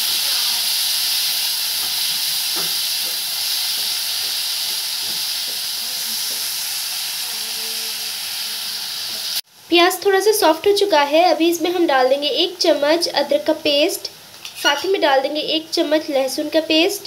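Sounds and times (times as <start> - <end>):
onions sizzling in hot oil: 0.0 - 17.0
metal spatula scraping: 14.4 - 14.9.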